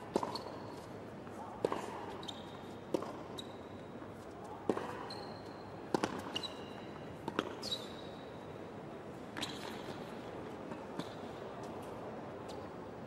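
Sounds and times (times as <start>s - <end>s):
shoe squeaks on court: 0.2s - 0.8s, 2.2s - 2.6s, 3.3s - 3.8s, 5.0s - 5.6s, 6.3s - 6.9s, 7.6s - 8.1s, 9.4s - 9.9s.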